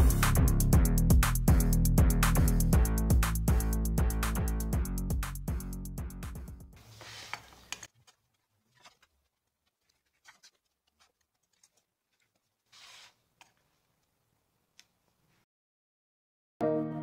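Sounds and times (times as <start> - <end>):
background music: 0.0 - 6.8, 16.6 - 17.0.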